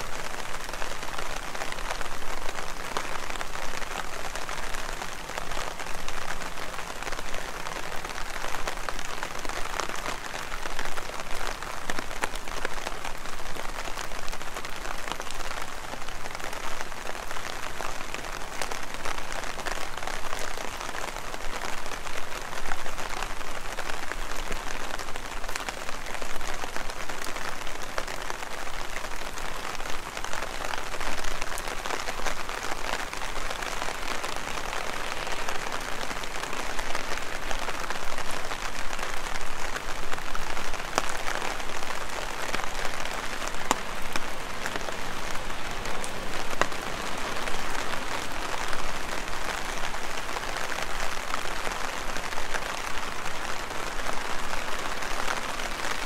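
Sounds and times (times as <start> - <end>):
heavy rain falling: 0.0 - 56.0.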